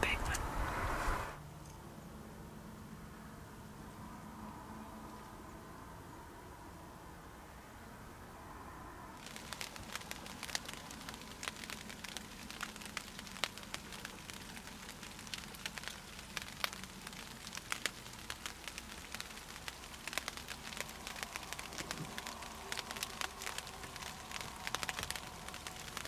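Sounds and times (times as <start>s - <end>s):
patter of small ticks and crackles: 9.2s - 26.0s.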